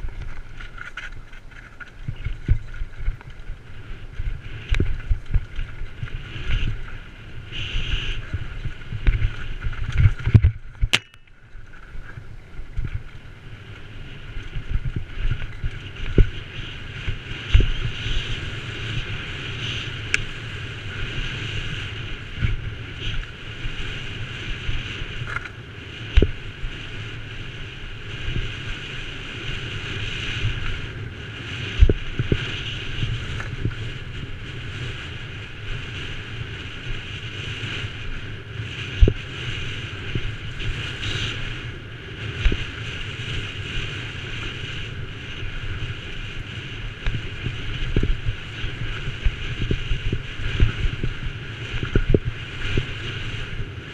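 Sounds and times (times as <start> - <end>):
bike knocking on bumps: 0.0 - 7.0, 7.7 - 13.3
bike tyre and chain rattle: 0.0 - 53.9
wind rush on microphone: 0.0 - 53.9.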